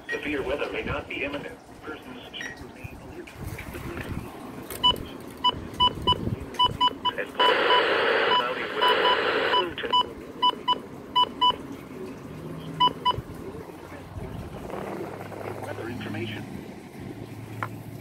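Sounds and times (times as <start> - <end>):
radio static hiss: 0.1 - 5.3, 7.0 - 10.2, 14.6 - 16.5
short electronic beeps: 4.8 - 11.6.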